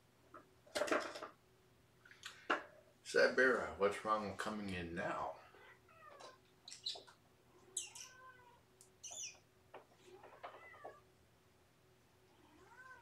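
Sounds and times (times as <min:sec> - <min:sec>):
cats meowing faintly: 0:05.3 - 0:11.1, 0:12.2 - 0:13.0.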